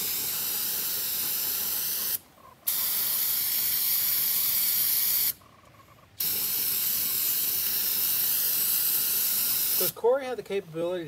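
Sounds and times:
aerosol spray hissing: 0.0s - 5.4s, 6.2s - 10.0s.

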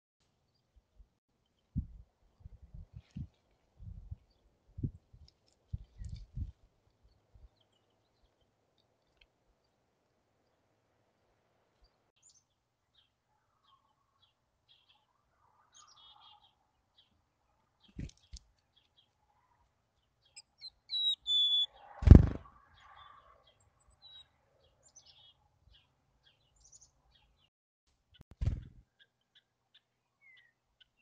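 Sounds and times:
chickadees chirping: 20.2s - 22.0s
high whistled bird note: 20.9s - 21.7s.

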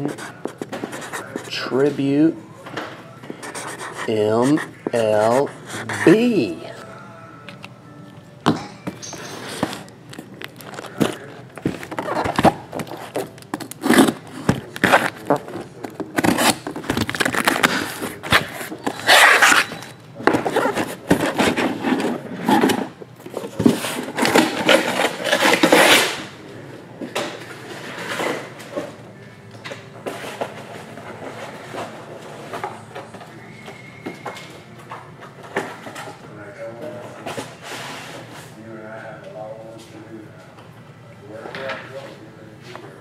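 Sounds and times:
cardboard scraping and rustling: 10.6s - 26.2s.

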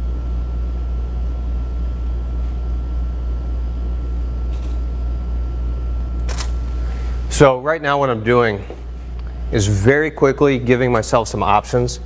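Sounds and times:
low room rumble: 0.0s - 12.0s
camera shutter click: 6.2s - 6.6s.

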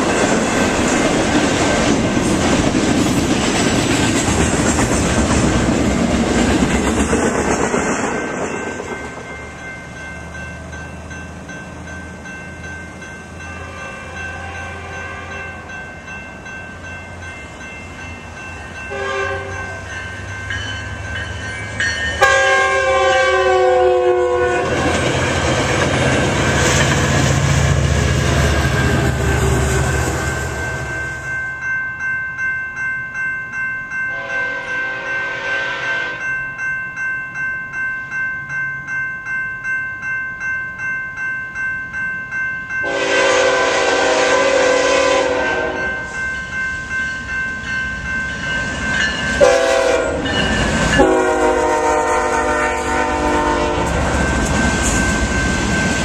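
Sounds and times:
train rumbling past: 0.0s - 32.1s, 42.3s - 56.0s
crossing warning bells ringing: 0.0s - 56.0s
locomotive air horn: 13.6s - 15.5s, 18.9s - 19.8s, 22.2s - 24.8s, 34.1s - 36.2s, 42.8s - 46.0s, 49.4s - 50.3s, 51.0s - 54.0s.

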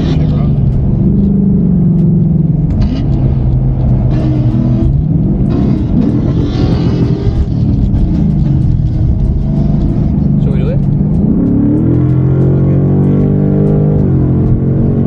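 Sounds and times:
car engine droning: 0.0s - 15.0s
wind and road noise: 0.0s - 15.0s.

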